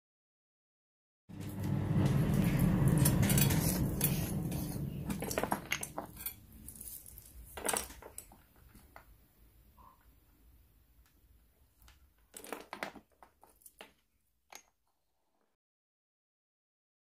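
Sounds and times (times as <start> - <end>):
low rumbling noise: 1.3 - 6.8.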